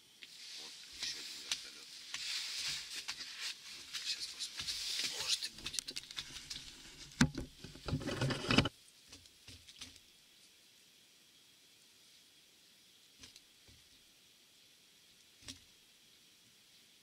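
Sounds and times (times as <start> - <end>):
camera handling clicks and bumps: 7.0 - 8.7.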